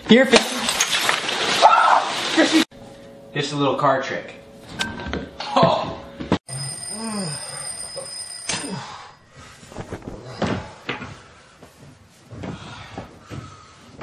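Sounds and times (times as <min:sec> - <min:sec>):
alarm clock ringing: 0:06.5 - 0:09.4
bedding rustling: 0:09.3 - 0:14.0.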